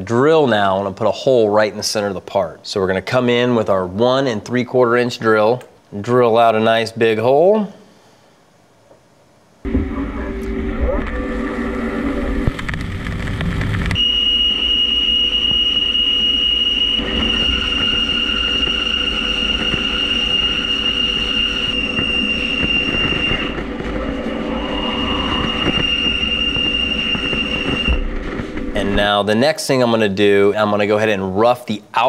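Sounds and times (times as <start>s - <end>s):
high-pitched whine: 9.6s - 30.4s.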